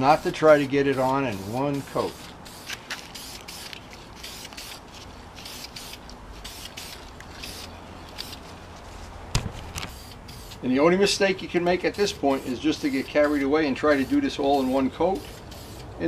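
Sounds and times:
spray can hissing: 0:00.1 - 0:04.8, 0:05.4 - 0:08.4, 0:09.9 - 0:10.6, 0:12.0 - 0:15.9.

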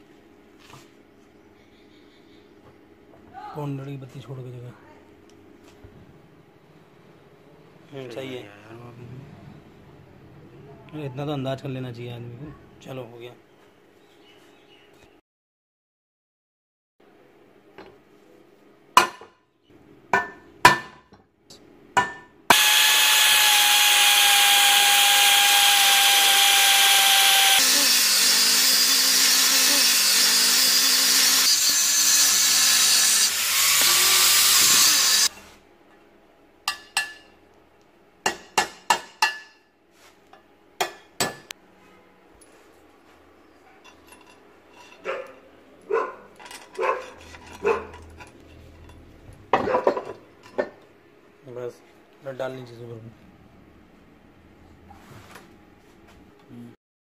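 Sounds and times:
angle grinder cutting steel: 0:22.5 - 0:35.3.

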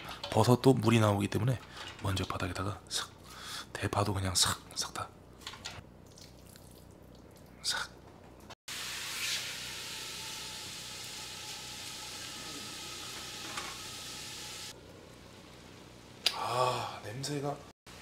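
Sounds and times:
meat sizzling in a hot pan: 0:08.7 - 0:16.2.

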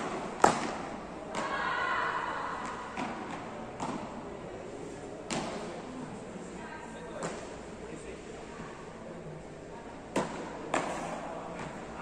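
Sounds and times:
paddles hitting a ball: 0:00.0 - 0:01.6, 0:02.6 - 0:04.1, 0:10.1 - 0:11.8.

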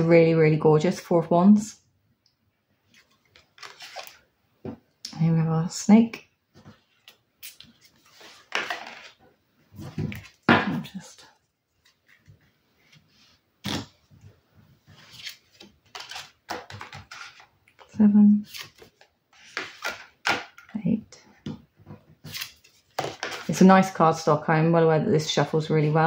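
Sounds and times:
cards rustling: 0:03.0 - 0:04.2, 0:15.0 - 0:20.6.

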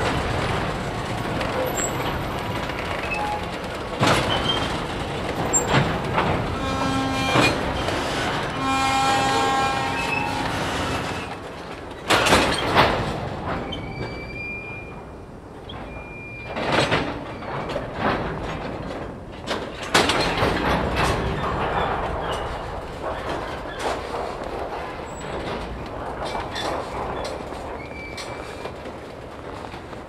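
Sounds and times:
train couplers clanking: 0:00.0 - 0:30.0
train rolling rumble: 0:00.0 - 0:30.0
train wheel squeal: 0:03.0 - 0:03.6, 0:06.6 - 0:11.4, 0:13.6 - 0:15.0, 0:15.7 - 0:16.6, 0:26.3 - 0:28.8.

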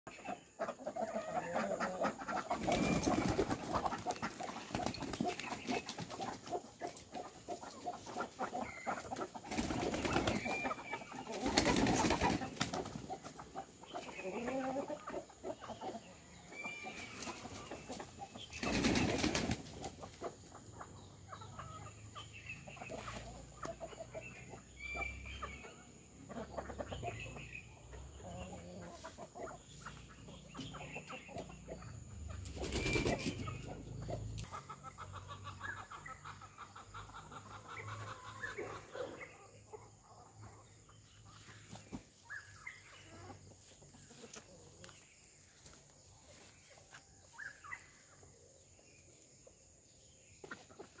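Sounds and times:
chickens clucking: 0:00.1 - 0:51.0
wings flapping: 0:02.6 - 0:06.0, 0:09.5 - 0:10.6, 0:11.4 - 0:12.9, 0:18.6 - 0:19.7, 0:32.5 - 0:33.5.

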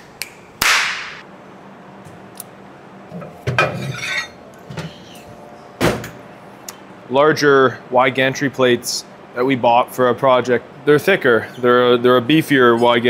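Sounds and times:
metal plates clinking: 0:03.2 - 0:04.4.

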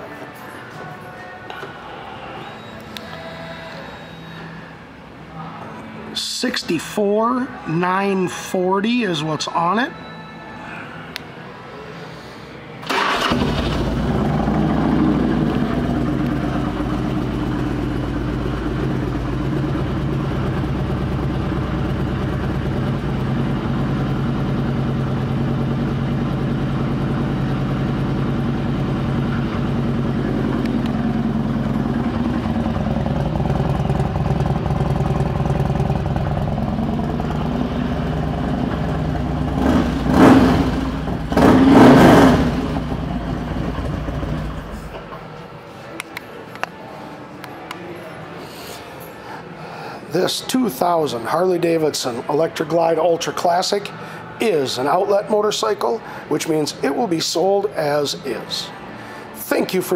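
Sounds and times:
motorcycle throttle revs: 0:13.0 - 0:18.2, 0:29.1 - 0:44.7
motorcycle engine idling: 0:13.4 - 0:44.9.

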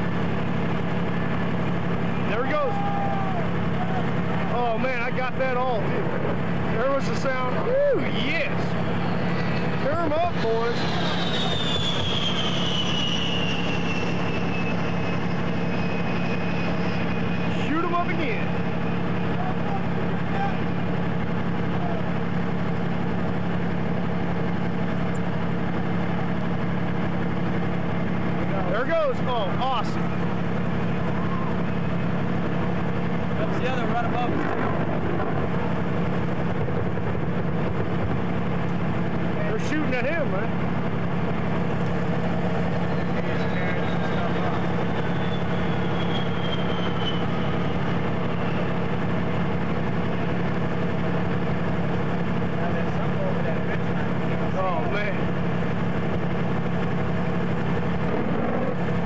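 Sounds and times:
engine drone: 0:00.0 - 0:59.0
faint high whine: 0:02.1 - 0:20.9.

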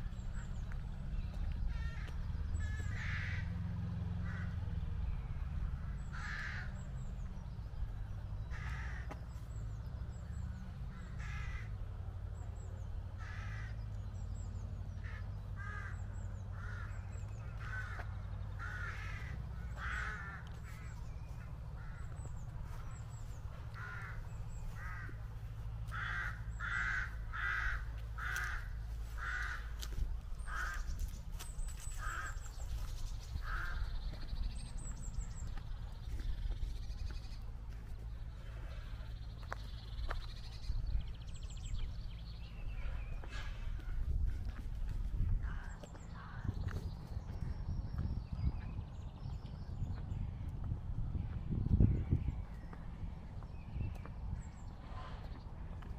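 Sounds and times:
low rumble: 0:00.0 - 0:55.9
crows cawing: 0:01.5 - 0:04.9, 0:05.8 - 0:07.0, 0:08.5 - 0:09.2, 0:10.9 - 0:11.8, 0:13.2 - 0:13.9, 0:15.0 - 0:34.3, 0:45.3 - 0:46.6.

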